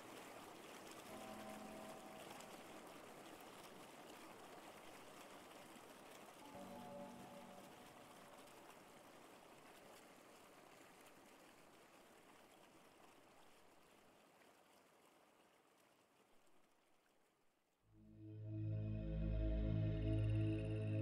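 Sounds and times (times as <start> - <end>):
soft rain hiss: 0.0 - 21.0
rain drop ticks: 0.2 - 10.5.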